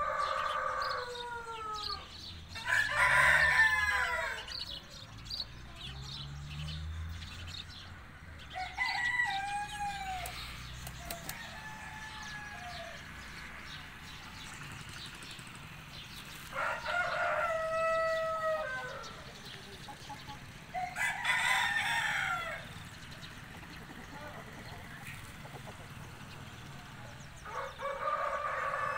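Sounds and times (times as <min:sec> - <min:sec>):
rooster crowing: 0:00.0 - 0:04.6, 0:08.5 - 0:10.4, 0:11.1 - 0:13.0, 0:16.5 - 0:19.2, 0:20.7 - 0:22.8, 0:27.4 - 0:28.9.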